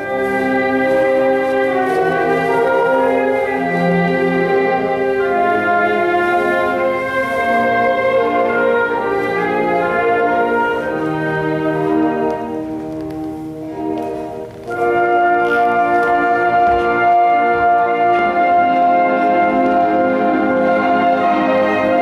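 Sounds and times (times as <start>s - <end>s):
orchestral classical music: 0.0s - 22.0s.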